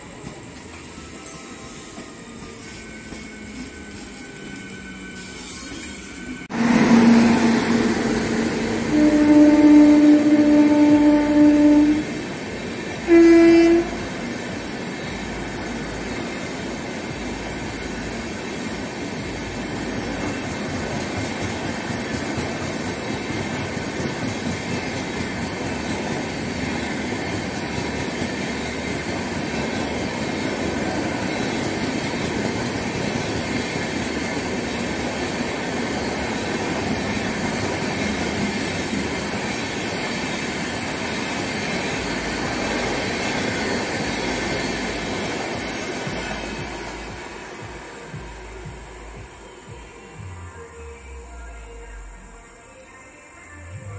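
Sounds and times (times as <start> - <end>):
train coaches rolling on rails: 0.0 - 50.8
train horn blast: 6.5 - 12.3, 13.0 - 14.1.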